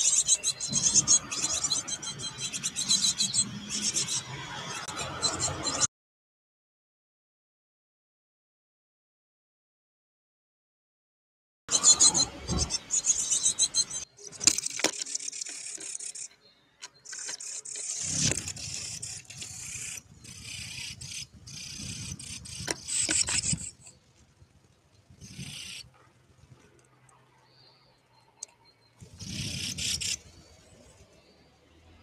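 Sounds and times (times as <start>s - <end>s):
animal claws scraping: 14.3s - 19.7s.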